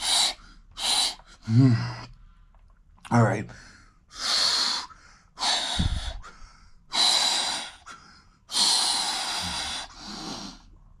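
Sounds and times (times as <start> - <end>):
man breathing heavily: 3.5 - 10.8.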